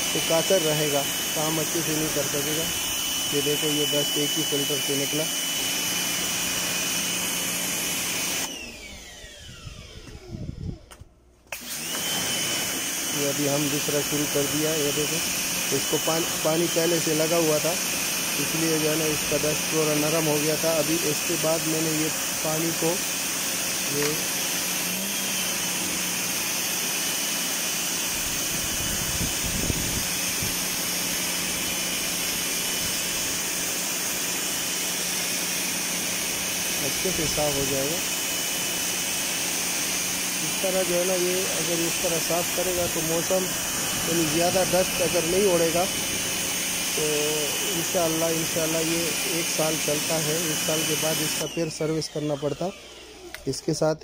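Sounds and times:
pressure washer spraying water: 0.0 - 8.6, 11.5 - 52.7
machine whine: 23.7 - 33.4.

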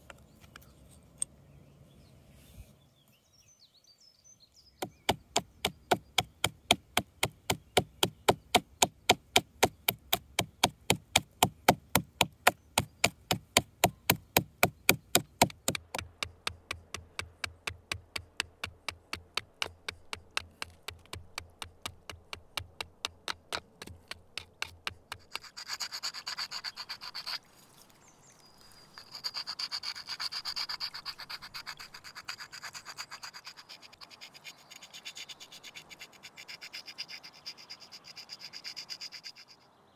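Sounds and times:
adze chopping wood: 4.8 - 25.4
whetstone scraping bone blade: 24.4 - 27.5, 28.9 - 39.6.

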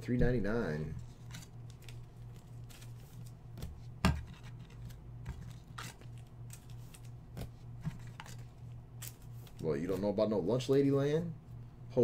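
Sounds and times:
trading cards shuffling: 1.1 - 10.1.

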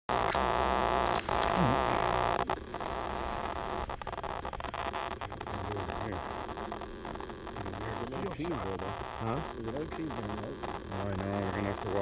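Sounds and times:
grass rustling on microphone: 0.2 - 12.0.

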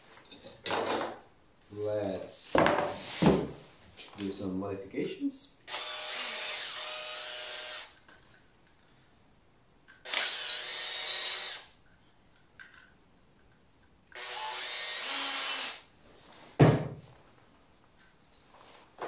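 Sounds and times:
cordless drill whining: 5.7 - 8.0, 10.0 - 11.7, 14.1 - 15.9.

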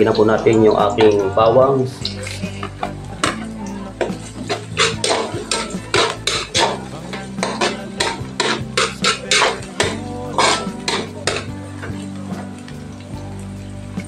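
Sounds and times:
onions sizzling in oil: 2.1 - 14.0
metal spatula scraping wok: 2.2 - 12.5.

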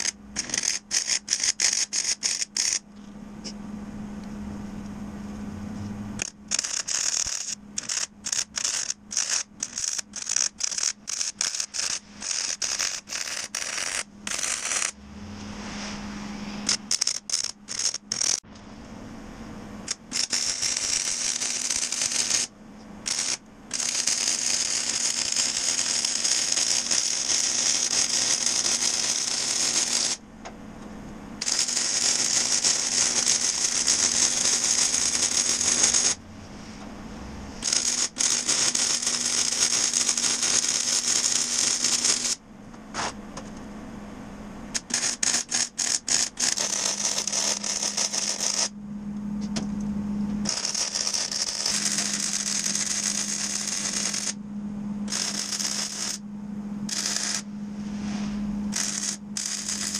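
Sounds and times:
short welding tack bursts: 0.0 - 2.8, 6.2 - 15.0, 16.7 - 18.4, 19.9 - 30.2, 31.4 - 36.2, 37.6 - 42.4, 44.8 - 48.7, 50.5 - 54.4, 55.1 - 56.2, 56.9 - 57.4, 58.7 - 59.9
welding arc crackling: 0.0 - 2.9, 6.2 - 15.0, 16.7 - 18.4, 19.8 - 30.2, 31.4 - 36.2, 37.6 - 42.4, 44.7 - 48.7, 50.4 - 54.4, 55.1 - 56.2, 56.9 - 57.5, 58.7 - 59.9
steady low hum: 0.0 - 59.9.

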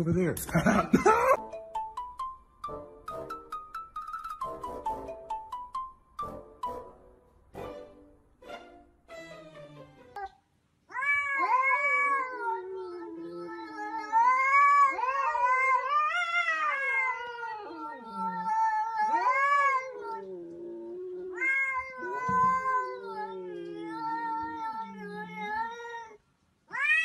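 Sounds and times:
cats yowling: 10.9 - 27.0.

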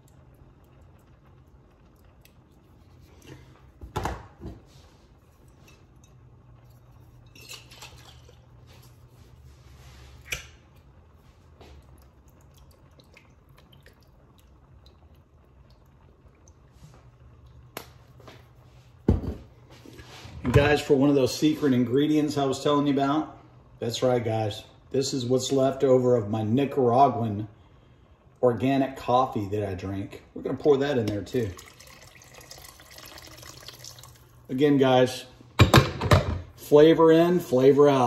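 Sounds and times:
steady low hum: 0.0 - 38.0
cookware knocking and clattering: 35.6 - 36.5.

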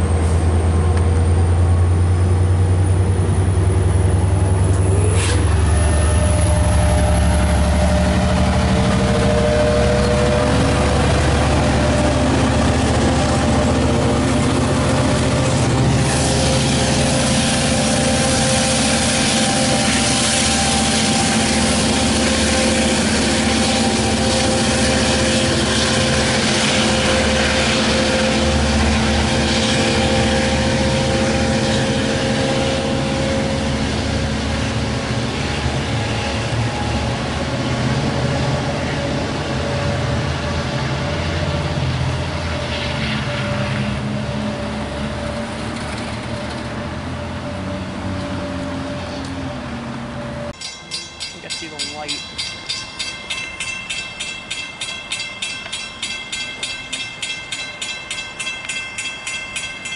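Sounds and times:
constant engine whine: 0.0 - 59.9
locomotive diesel engine rumble: 0.0 - 59.9.

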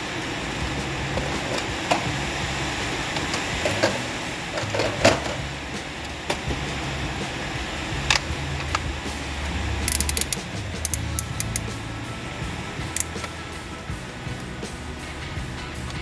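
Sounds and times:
steady low hum: 0.0 - 16.0
plastic toy clicks and knocks: 9.9 - 11.6.

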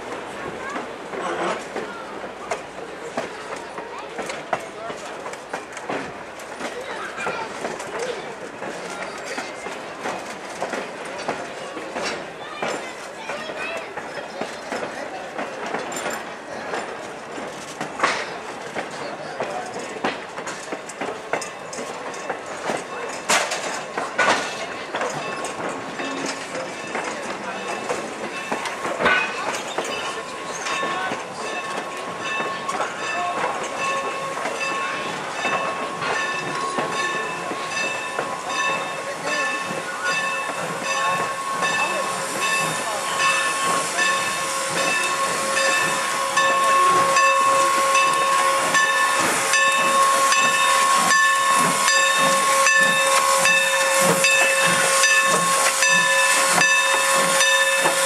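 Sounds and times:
steam hiss: 27.7 - 58.0.

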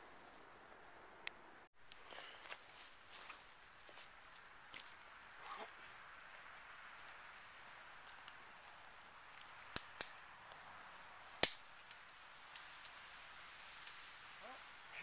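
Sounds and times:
faint steady hiss: 0.0 - 15.0
twigs snapping: 1.3 - 12.9.

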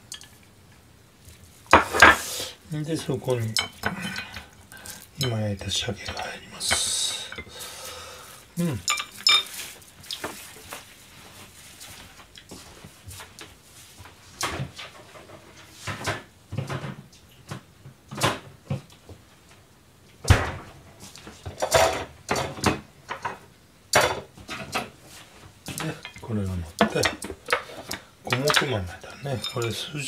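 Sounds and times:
dishes clattering on steel counter: 1.7 - 2.2, 8.8 - 9.6, 21.5 - 24.9, 26.8 - 29.9.

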